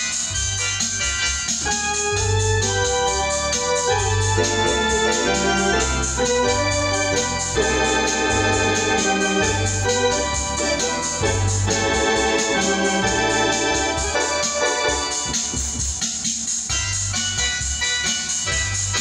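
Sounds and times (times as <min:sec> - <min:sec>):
organ bass line: 0:00.0 - 0:19.0
organ chords: 0:00.0 - 0:19.0.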